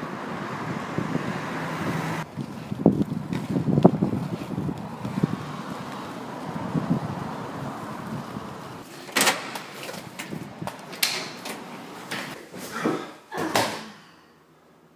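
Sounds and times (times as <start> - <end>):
wind noise on microphone: 0.1 - 8.8, 10.0 - 10.9.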